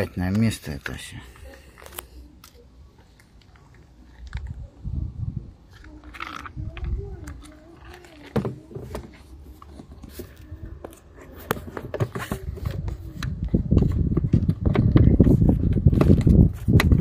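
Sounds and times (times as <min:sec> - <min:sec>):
plastic handling and rubbing: 0:05.5 - 0:17.0.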